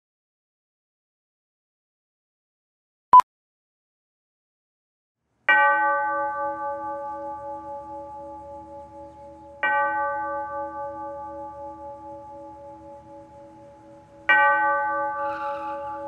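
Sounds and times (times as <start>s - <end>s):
church bell tolling: 5.5s - 16.0s.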